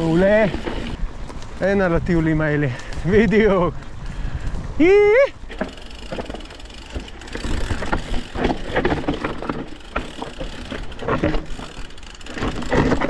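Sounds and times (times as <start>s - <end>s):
bike knocks and rattles: 0.0s - 1.8s, 5.4s - 13.0s
tyres crunching over stones: 0.0s - 4.7s, 5.3s - 13.0s.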